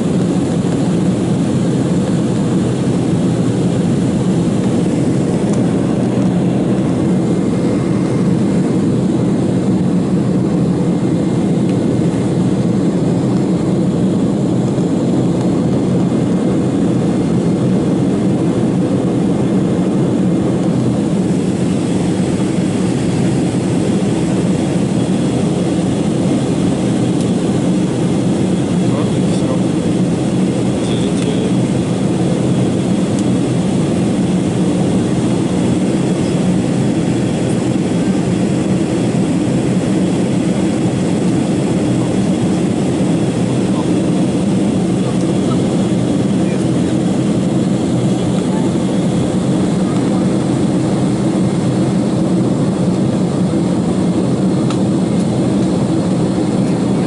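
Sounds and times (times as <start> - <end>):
jet airliner cabin noise: 0.0 - 57.0.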